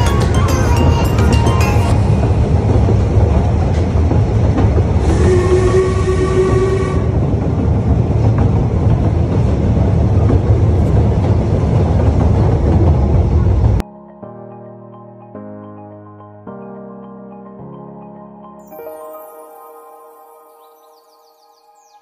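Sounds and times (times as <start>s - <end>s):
train rumbling: 0.0s - 13.8s
train whistle blast: 5.0s - 7.3s.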